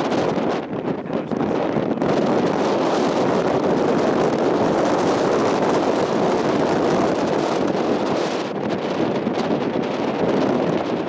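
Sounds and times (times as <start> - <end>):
strong wind on microphone: 0.0 - 11.0.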